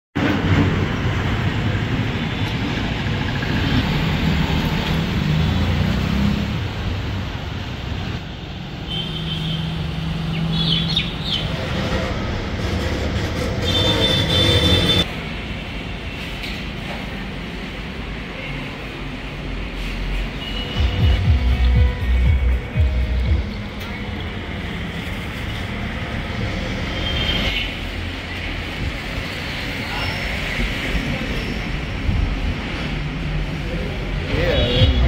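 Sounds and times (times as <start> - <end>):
road traffic rumble: 0.2 - 35.0.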